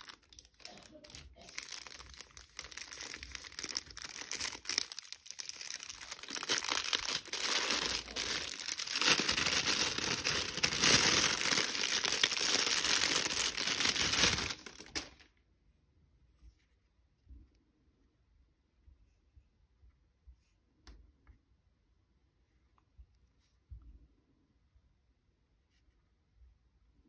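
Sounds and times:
plastic bag crinkling: 0.0 - 15.3.

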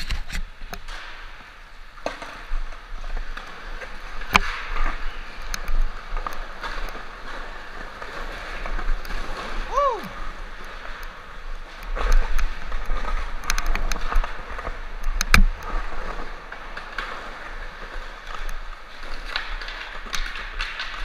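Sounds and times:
skateboard clacks: 0.0 - 21.0
skateboard wheels rolling on concrete: 0.0 - 21.0.

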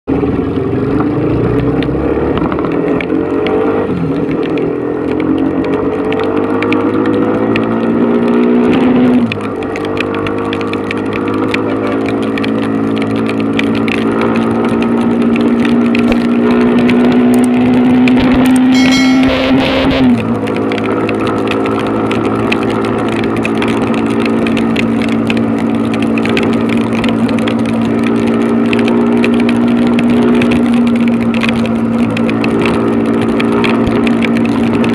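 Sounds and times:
rain: 0.1 - 18.7, 20.2 - 34.9
motorcycle engine running: 9.3 - 34.9.

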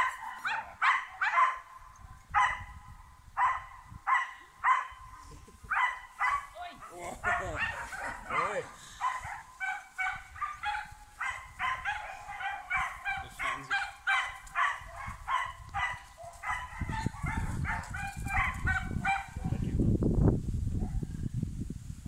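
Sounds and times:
puppies yapping: 5.7 - 19.3.

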